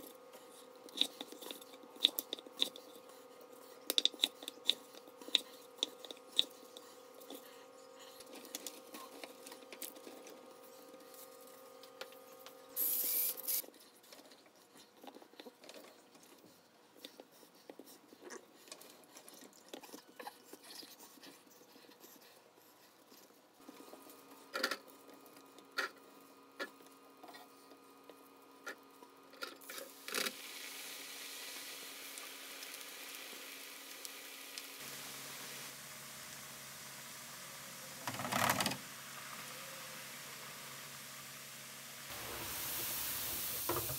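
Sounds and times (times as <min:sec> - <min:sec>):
fries sizzling in hot oil: 0:12.8 - 0:13.6, 0:29.6 - 0:43.9.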